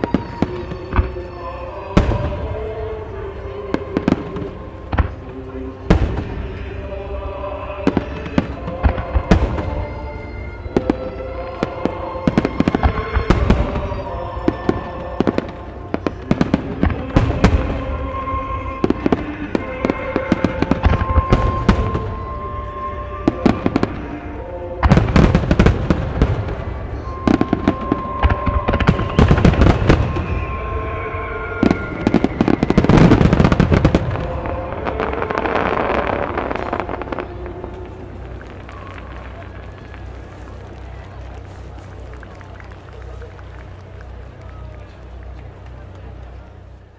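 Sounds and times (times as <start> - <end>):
fireworks launching and bursting: 7.8 - 22.5, 23.3 - 44.1.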